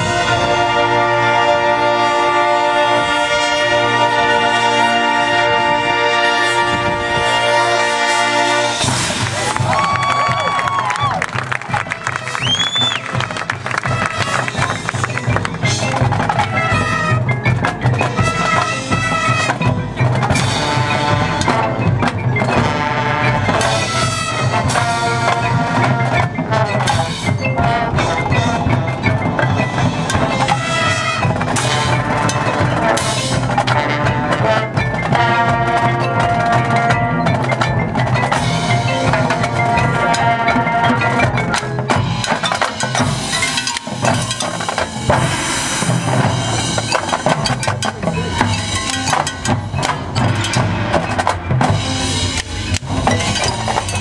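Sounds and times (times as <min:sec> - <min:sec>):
drums: 0:00.0 - 0:54.0
marching band playing: 0:00.0 - 0:54.0
marimbas: 0:00.0 - 0:54.0.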